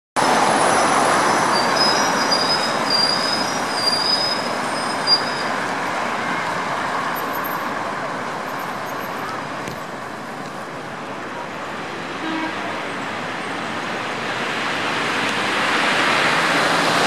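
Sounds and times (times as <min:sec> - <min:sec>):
tram wheels squealing on rails: 0:00.2 - 0:07.8
street traffic rumble: 0:00.2 - 0:17.0.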